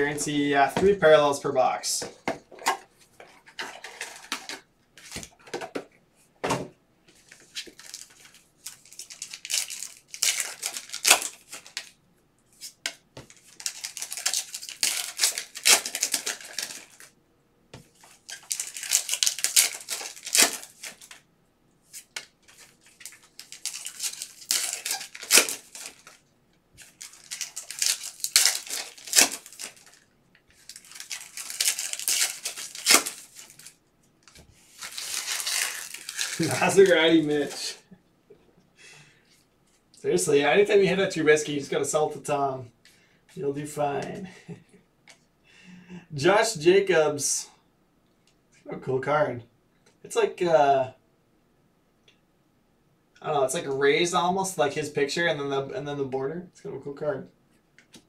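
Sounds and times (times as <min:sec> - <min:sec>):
foil packs tearing and crinkling: 0:07.6 - 0:11.9, 0:13.3 - 0:17.1, 0:18.0 - 0:21.2, 0:22.0 - 0:26.2, 0:26.8 - 0:33.8, 0:34.6 - 0:37.6
cards clicking and rustling: 0:12.6 - 0:17.1, 0:17.8 - 0:21.2, 0:21.9 - 0:26.2, 0:26.8 - 0:37.6.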